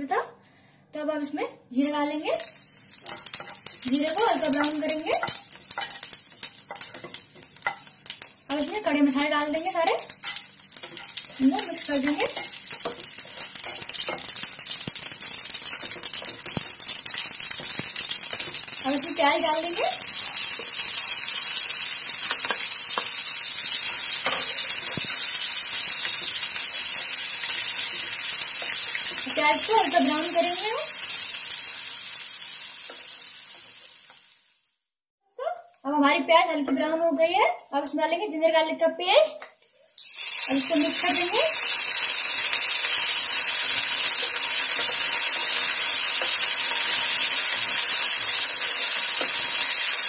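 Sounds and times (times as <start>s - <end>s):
onions sizzling in hot oil: 1.8s - 34.8s, 39.8s - 50.0s
spatula stirring in pan: 2.9s - 8.3s, 9.3s - 19.4s
spatula ticking against pan: 4.5s - 8.2s.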